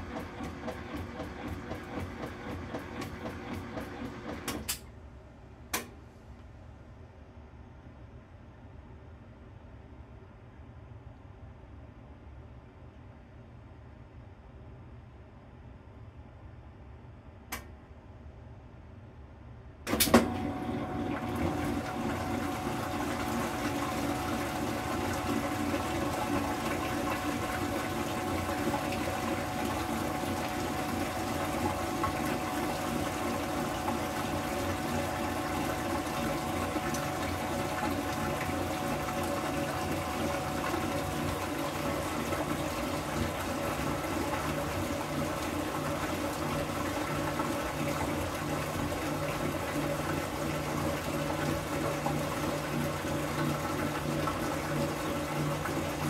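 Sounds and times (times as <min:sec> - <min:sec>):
washer drain pump whining: 0:00.0 - 0:04.8, 0:19.9 - 0:56.0
water draining: 0:20.4 - 0:44.6.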